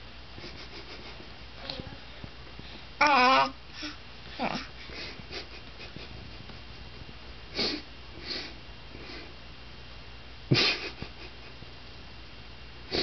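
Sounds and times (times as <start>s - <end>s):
baby sniffing and puffing: 0.4s - 1.2s, 7.5s - 9.3s
baby grunting: 3.0s - 4.7s.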